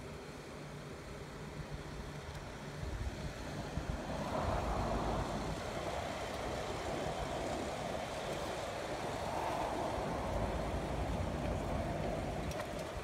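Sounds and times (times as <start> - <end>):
cars driving past: 3.9 - 13.0.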